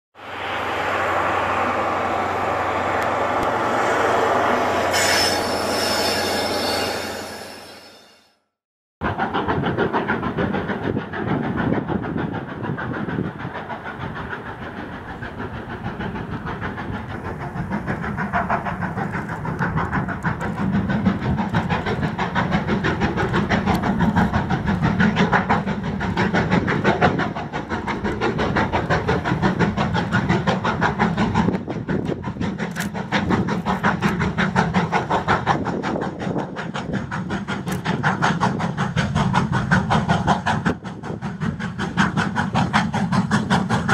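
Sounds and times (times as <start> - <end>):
steam locomotive exhaust beating: 0.2 - 8.2, 9.0 - 43.9
coaches rolling on rails: 9.0 - 43.9.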